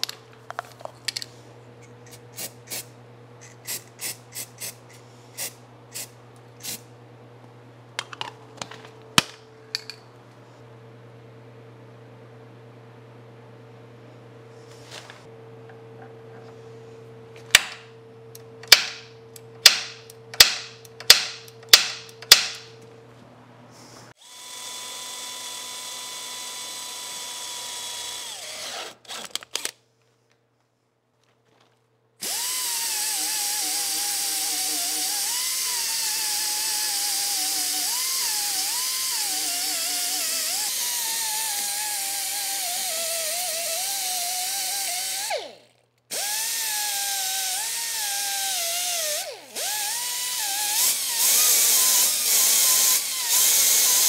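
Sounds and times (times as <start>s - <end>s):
power tool whining: 24.1s - 29.7s, 32.2s - 54.0s
cordless drill running: 24.2s - 29.7s, 32.2s - 54.0s.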